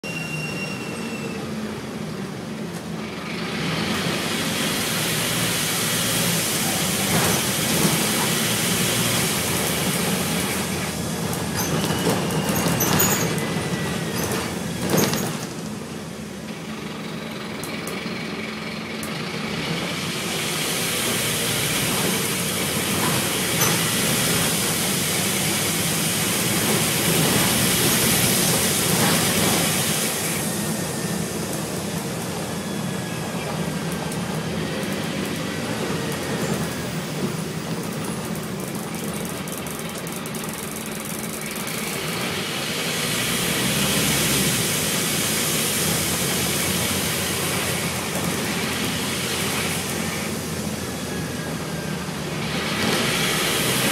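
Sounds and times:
bus diesel engine humming: 0:00.0 - 0:53.9
road and wind noise: 0:00.1 - 0:53.9
sharp clicks and rattles: 0:37.8 - 0:42.0.

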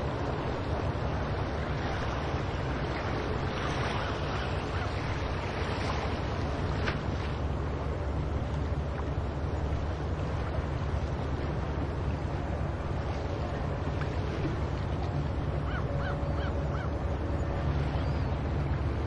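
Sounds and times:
steady wind: 0:00.0 - 0:19.0
surf rumble: 0:00.0 - 0:19.0
gulls calling: 0:02.9 - 0:05.6, 0:15.3 - 0:19.0.

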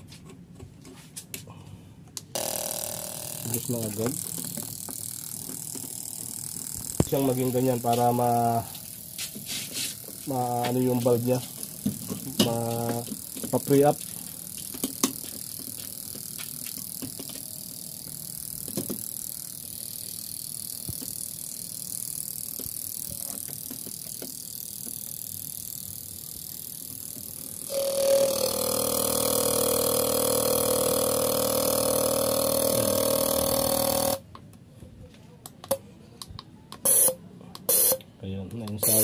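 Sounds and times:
fuel injector buzzing: 0:02.3 - 0:34.2, 0:36.8 - 0:38.0, 0:38.8 - 0:39.0
fuel injector clicking into tester: 0:03.5 - 0:08.3.

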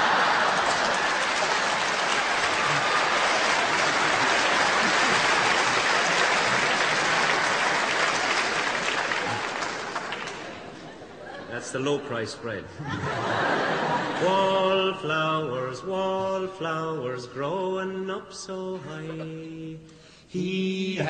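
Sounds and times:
large audience applauding: 0:00.0 - 0:11.0.

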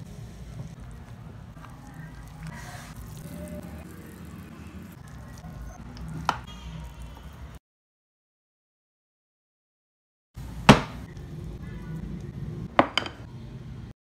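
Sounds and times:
spoon squishing sticky rice: 0:00.5 - 0:07.5.

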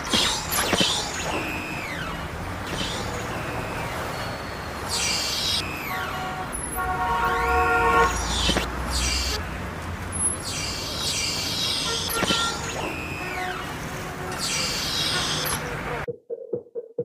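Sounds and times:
street traffic noise: 0:00.0 - 0:16.1
falling whistle-like tones: 0:00.7 - 0:09.4
vehicle horn sounding: 0:05.6 - 0:09.5, 0:11.8 - 0:15.9.

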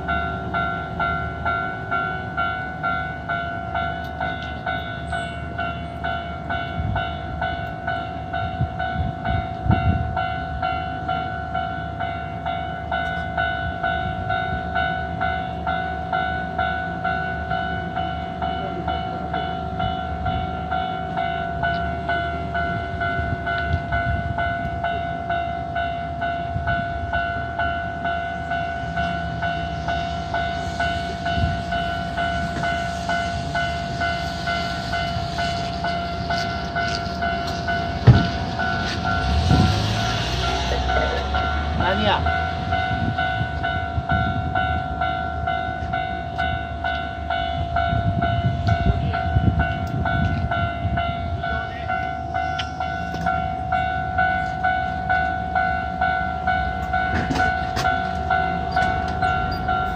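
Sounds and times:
level crossing alarm dinging: 0:00.0 - 0:59.9
car approaching: 0:27.0 - 0:46.9.

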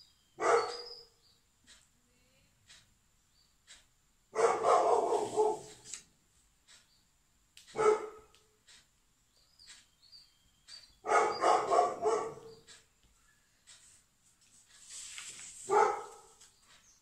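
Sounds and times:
dog barking: 0:00.4 - 0:01.1, 0:04.3 - 0:05.8, 0:07.7 - 0:08.3, 0:11.0 - 0:12.7, 0:15.7 - 0:16.4.

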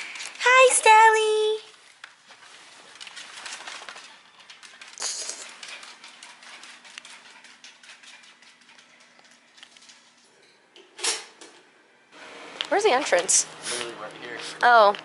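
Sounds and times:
dog claws clicking on wooden floor: 0:02.9 - 0:10.1.

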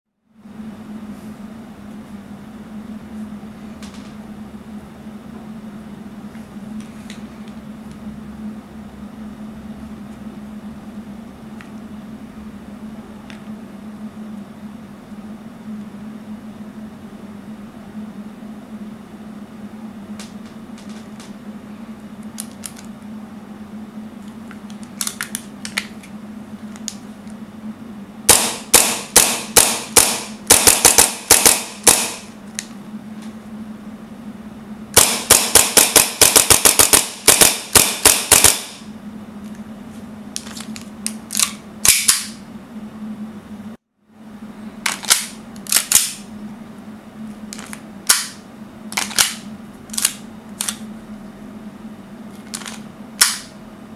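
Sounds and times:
airsoft pistol shots: 0:28.3 - 0:32.3, 0:35.0 - 0:38.8.

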